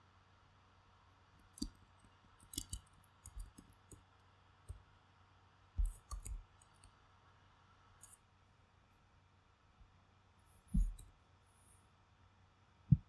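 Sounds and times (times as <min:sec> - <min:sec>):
mouse and keyboard clicks: 0:01.4 - 0:01.8, 0:02.4 - 0:04.0, 0:05.8 - 0:06.9.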